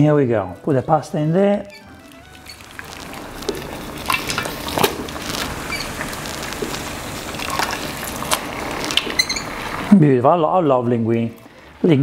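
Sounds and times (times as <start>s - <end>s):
sharp crackles and pops: 0.6s - 10.0s
sauce sizzling in frying pan: 1.7s - 9.9s.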